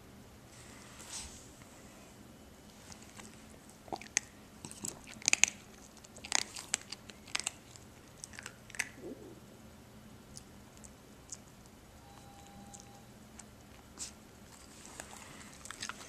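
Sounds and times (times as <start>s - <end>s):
puppy crunching food: 2.7s - 9.0s, 10.3s - 11.8s, 13.4s - 16.0s.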